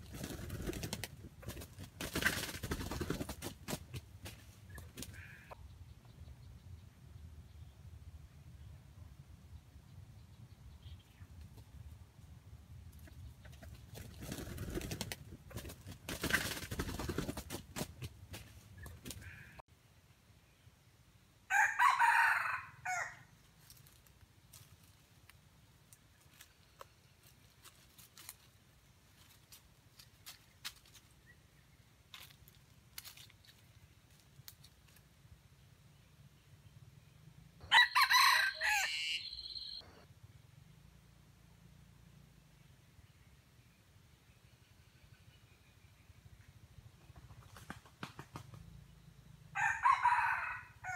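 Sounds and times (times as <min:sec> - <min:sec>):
rooster crowing: 0:21.5 - 0:23.3, 0:37.6 - 0:39.7, 0:49.5 - 0:50.9
rustling: 0:23.4 - 0:31.3, 0:32.1 - 0:35.1.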